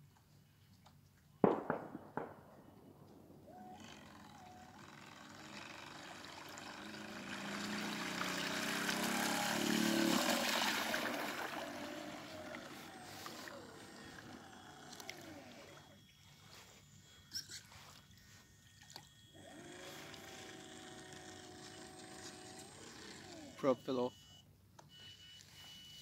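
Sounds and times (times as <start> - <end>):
electric motor whine: 3.5 - 24.1
boat hull hissing through water: 5.4 - 14.3.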